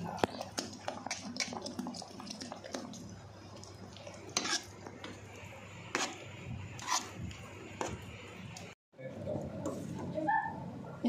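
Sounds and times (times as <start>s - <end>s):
spoon scraping a metal pot: 4.3s - 5.2s, 5.9s - 6.2s, 6.8s - 7.2s.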